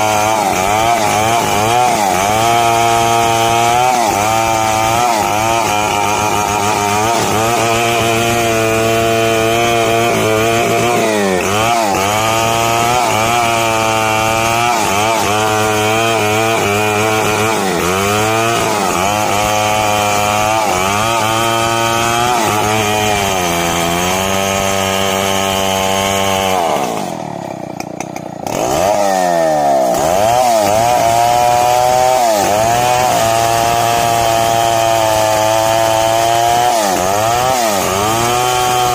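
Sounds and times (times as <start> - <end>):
chainsaw cutting wood: 0.0 - 38.9.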